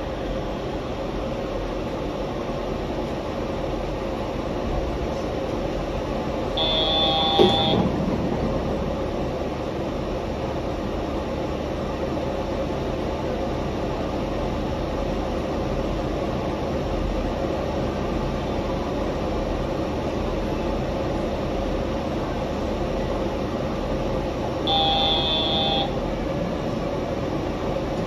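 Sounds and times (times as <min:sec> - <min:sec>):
train running: 0:00.0 - 0:28.0
brief high tone: 0:06.6 - 0:07.8, 0:24.7 - 0:26.0.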